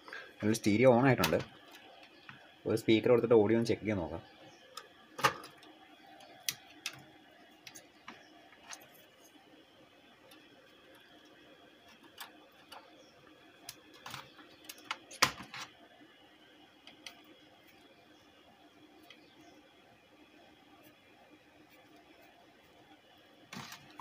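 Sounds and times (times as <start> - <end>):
faint steady hum: 0.0 - 24.0.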